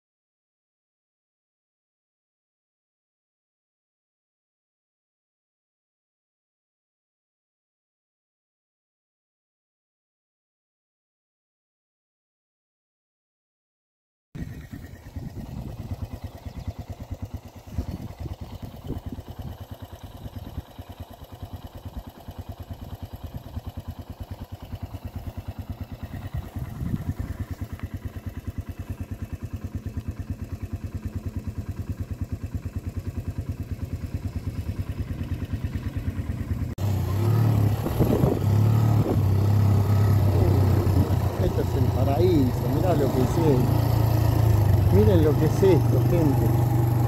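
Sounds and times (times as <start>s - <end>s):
small motorcycle engine running: 14.4s - 47.0s.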